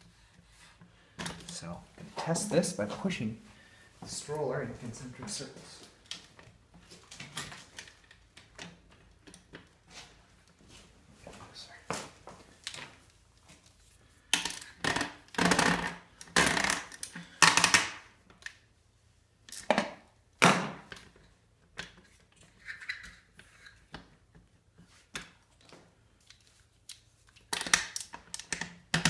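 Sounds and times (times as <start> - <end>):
stroller parts knocking and clicking: 27.5 - 29.0.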